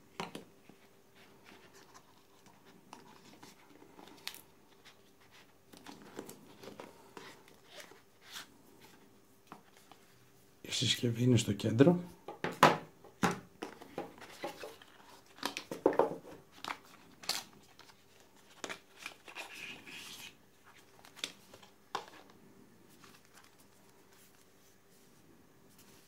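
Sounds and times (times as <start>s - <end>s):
paper rustling: 22.9s - 25.1s.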